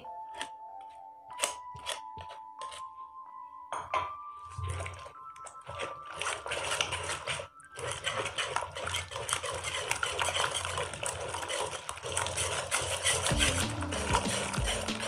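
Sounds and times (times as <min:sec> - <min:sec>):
whisk scraping a metal pot: 0:04.5 - 0:15.0.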